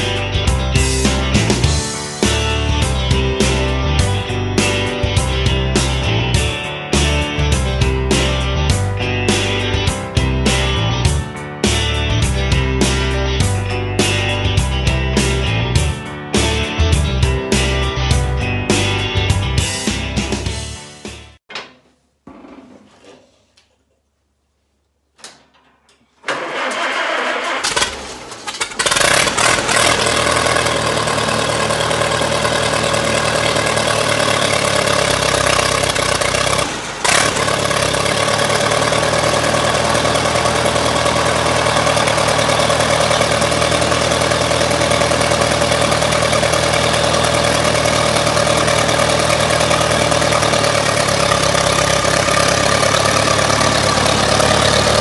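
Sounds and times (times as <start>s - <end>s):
tractor engine cranking and running: 25.2s - 55.0s.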